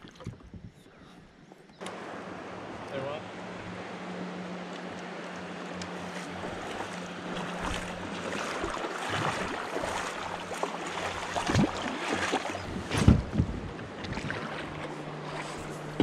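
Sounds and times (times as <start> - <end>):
river water lapping around rocks: 1.9 - 16.0
wind buffeting microphone: 11.2 - 14.9.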